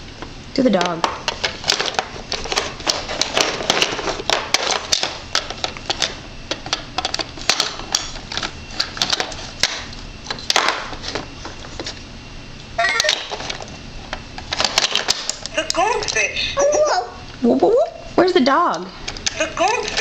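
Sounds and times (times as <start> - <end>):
plastic cubes clattering: 1.0 - 11.2.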